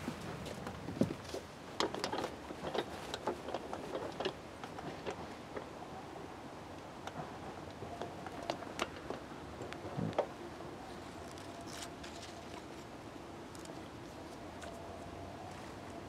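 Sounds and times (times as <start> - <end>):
small clicks and rustles: 0.0 - 5.7, 11.1 - 12.9, 13.5 - 16.0
faint steady hum: 0.0 - 16.0.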